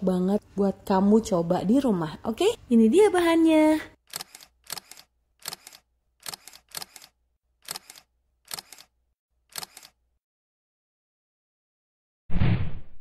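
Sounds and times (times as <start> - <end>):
camera shutter double click: 4.1 - 8.9, 9.5 - 10.0.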